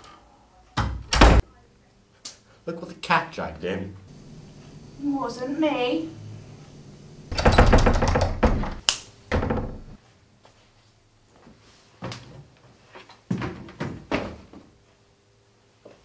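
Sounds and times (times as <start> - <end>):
wooden door rattling and knocking: 7.3 - 10.0.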